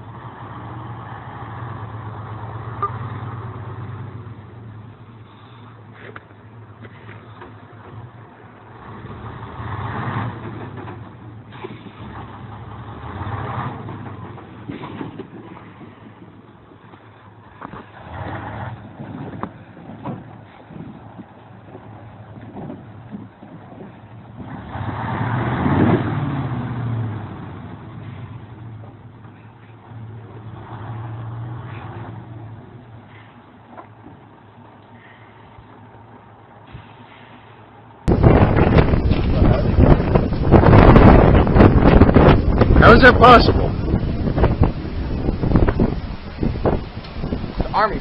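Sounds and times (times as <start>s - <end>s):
vehicle driving by: 0.0s - 5.6s, 6.5s - 16.3s, 17.5s - 21.0s, 23.8s - 48.0s
truck engine running: 0.0s - 24.8s, 25.4s - 48.0s
vehicle engine running: 26.2s - 48.0s.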